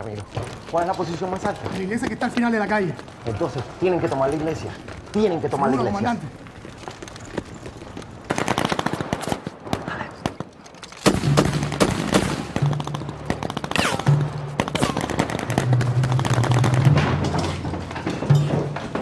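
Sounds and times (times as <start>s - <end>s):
machine-gun and rifle fire: 8.3s - 10.4s, 11.0s - 17.4s.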